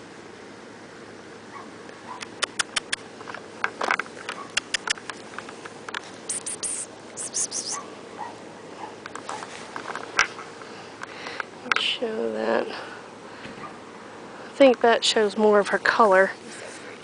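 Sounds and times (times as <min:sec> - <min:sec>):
pet claws clicking and tapping: 0:02.2 - 0:06.5
short hissing bursts: 0:06.3 - 0:07.8.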